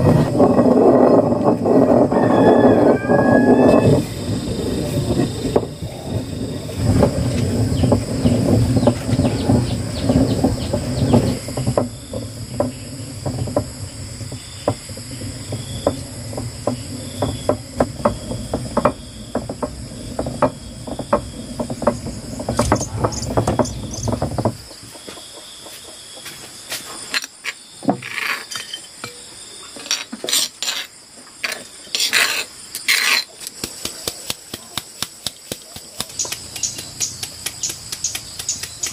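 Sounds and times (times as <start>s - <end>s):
insects trilling: 0.0s - 38.9s
sharp clicks and knocks: 6.9s - 25.3s, 32.7s - 38.9s.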